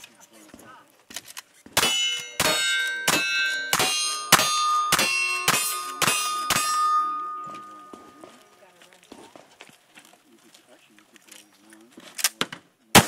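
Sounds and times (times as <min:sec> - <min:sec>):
rifle shots: 0:01.8 - 0:07.2
steel plate ringing clang: 0:01.8 - 0:08.4.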